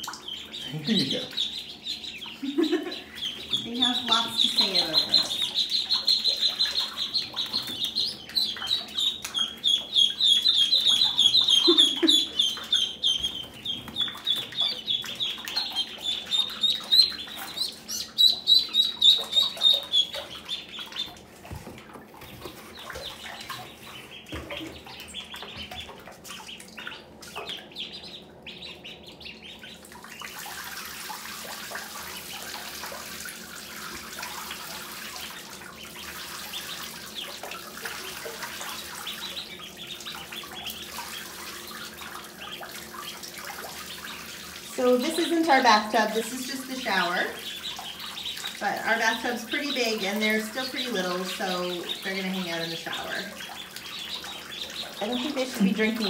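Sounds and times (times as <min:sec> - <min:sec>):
running water rushing: 0:00.0 - 0:27.6, 0:29.5 - 0:56.0
ducklings peeping: 0:00.0 - 0:56.0.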